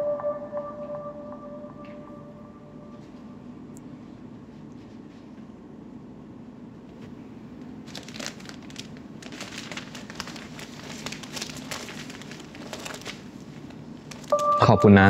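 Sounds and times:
paper wrapping crinkling: 6.9 - 14.7.

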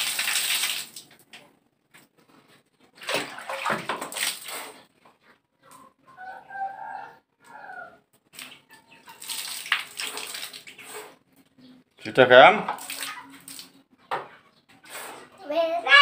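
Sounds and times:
water splashing onto tiled floor: 0.0 - 1.4, 3.0 - 4.8, 8.3 - 10.9, 12.7 - 13.8.

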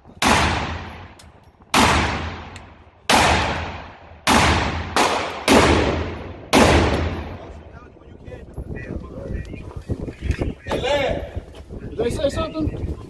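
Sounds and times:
loud pistol shots: 0.2 - 7.5.

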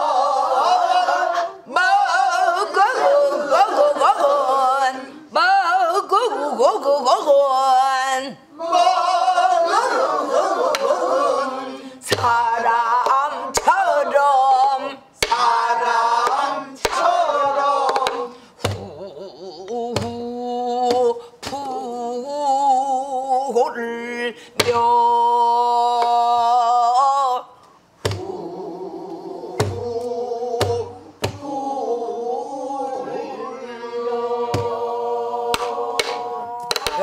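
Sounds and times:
woman singing in wavering voice: 17.8 - 37.0.

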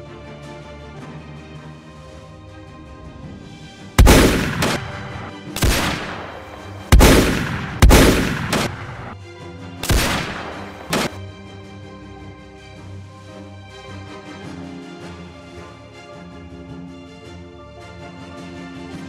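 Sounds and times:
background music: 0.0 - 19.0
rifle shots echoing: 4.0 - 9.2, 9.8 - 11.2
faint cracks: 9.8 - 11.2.

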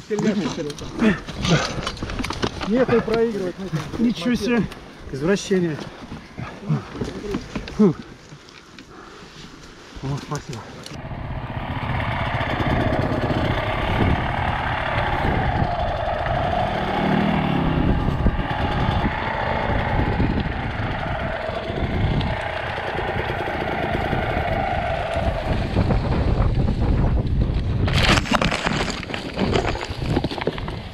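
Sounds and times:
motorcycle engine running: 11.0 - 26.8.

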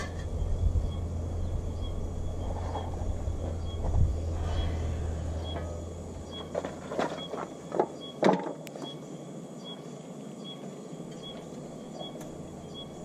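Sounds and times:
tools clattering on ground: 0.0 - 0.3, 6.3 - 9.0.

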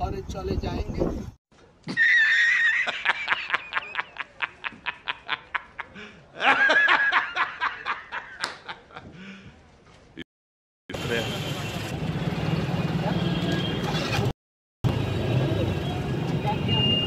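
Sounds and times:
man cackling laughter: 1.9 - 9.1.

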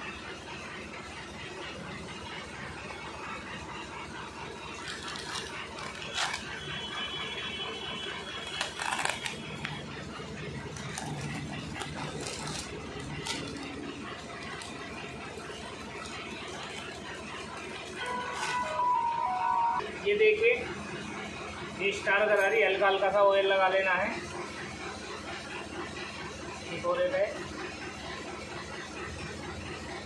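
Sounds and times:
packaging rustling: 4.8 - 6.5, 8.4 - 9.8, 10.6 - 14.8.

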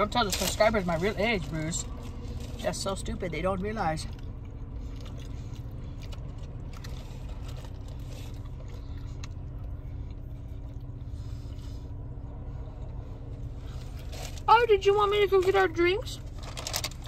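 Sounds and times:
low rumble in car cabin: 0.0 - 17.0
food wrapper rustles and clicks: 16.4 - 17.0.

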